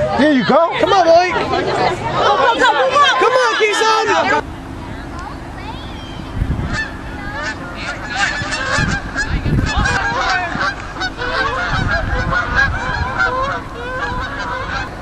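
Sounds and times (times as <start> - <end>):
geese honking: 0.0 - 4.4, 6.2 - 15.0
wind rumbling on microphone: 4.9 - 15.0.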